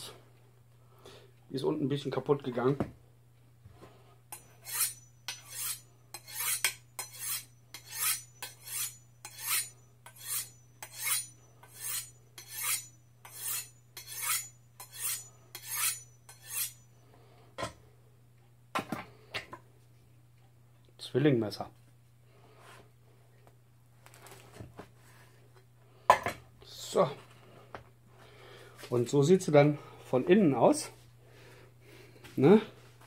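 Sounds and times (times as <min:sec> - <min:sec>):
knife scraping on honing steel: 0:04.3 - 0:16.9.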